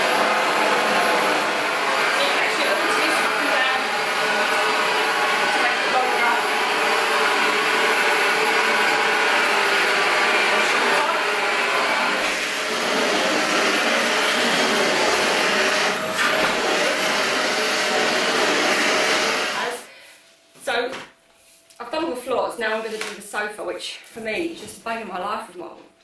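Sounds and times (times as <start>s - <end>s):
vacuum cleaner motor whining: 0.0s - 19.9s.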